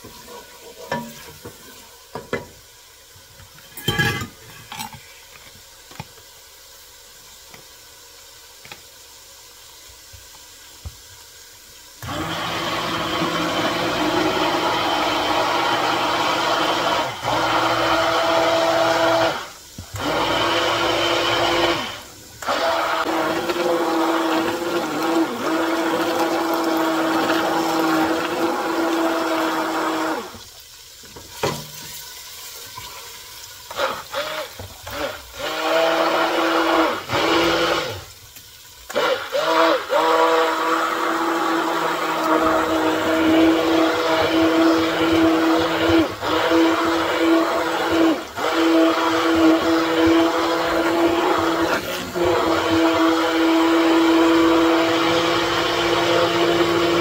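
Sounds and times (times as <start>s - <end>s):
immersion blender motor whine: 12.0s - 30.4s, 33.7s - 38.1s, 38.9s - 57.0s.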